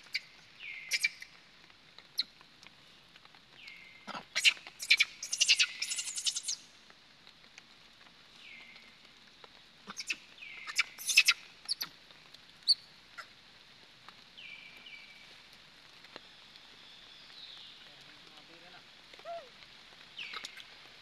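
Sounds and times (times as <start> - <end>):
high-pitched animal chirps: 4.4 - 6.6, 9.9 - 11.9.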